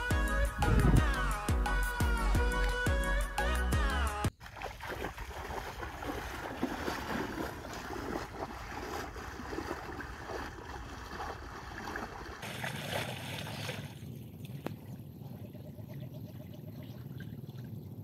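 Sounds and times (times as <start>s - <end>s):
wading through water splashing: 4.3s - 14.9s.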